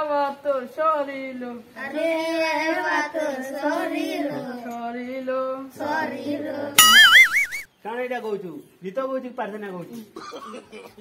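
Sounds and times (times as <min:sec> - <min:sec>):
child singing: 0:01.8 - 0:06.8
loud warbling tone: 0:06.8 - 0:07.7.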